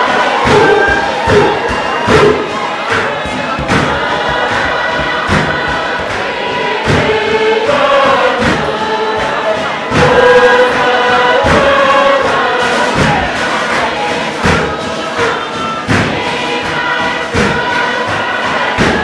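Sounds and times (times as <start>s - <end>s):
group singing in chorus: 0.0s - 19.0s
struck percussion beat: 0.0s - 19.0s.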